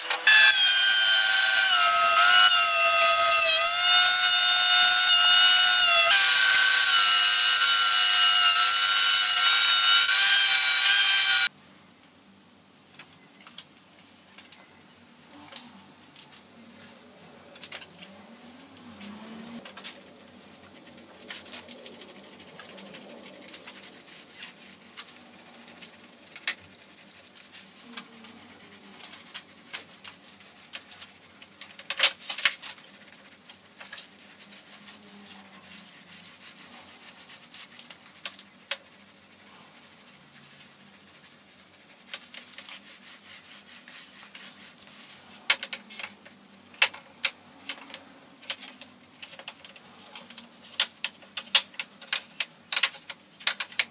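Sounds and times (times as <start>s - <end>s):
glue roller rubbing: 0.0s - 11.5s, 20.6s - 45.5s
wooden strips clicking: 46.8s - 53.9s.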